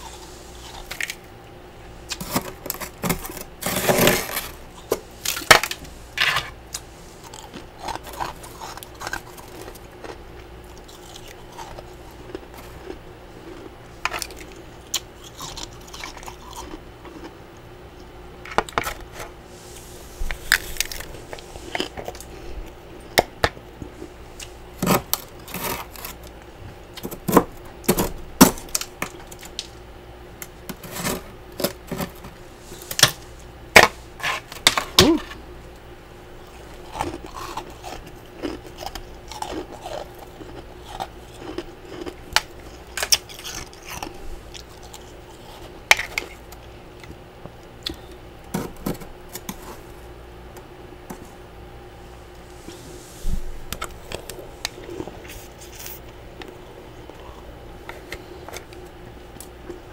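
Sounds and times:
spatula scraping frost: 2.1s - 5.0s, 30.8s - 32.9s.

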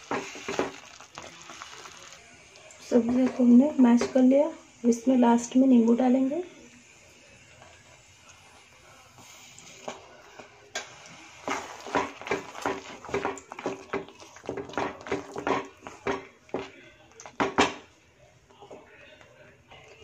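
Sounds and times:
wooden spatula scraping a pan: 9.2s - 16.7s.

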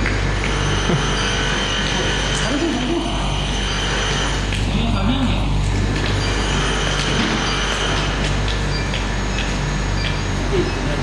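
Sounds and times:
furnace humming and whining: 0.0s - 11.0s
sparks crackling: 0.0s - 11.0s.

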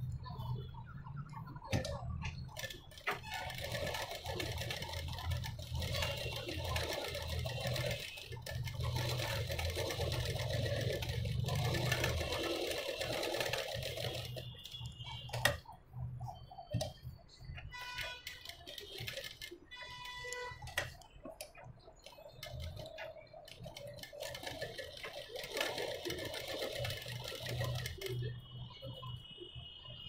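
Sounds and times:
electric sewing machine running: 2.6s - 15.4s, 18.0s - 20.0s, 22.4s - 28.3s.

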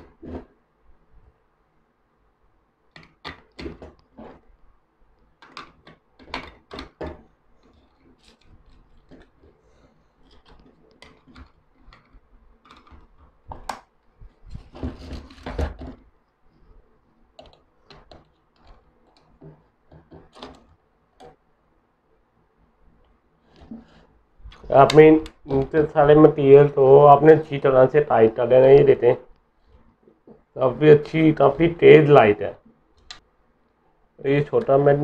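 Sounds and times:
plastic and metal clicks and knocks: 2.9s - 4.4s, 5.4s - 9.6s, 10.2s - 13.9s, 17.4s - 21.4s.

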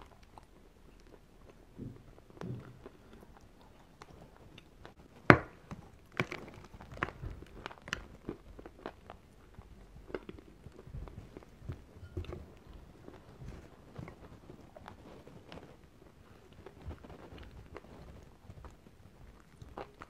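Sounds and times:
chalk crunching when chewed: 12.6s - 20.0s.

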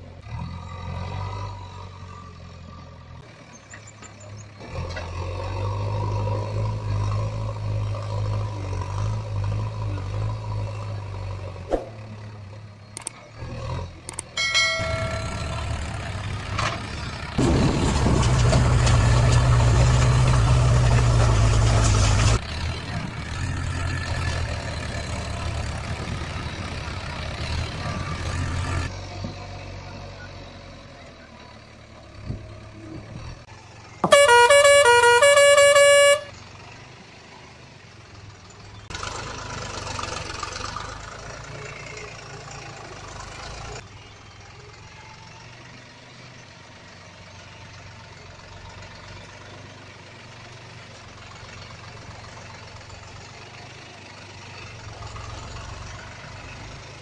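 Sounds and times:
musical vehicle horn: 14.4s - 15.5s, 34.0s - 36.4s
faint outdoor background noise: 22.5s - 34.0s.

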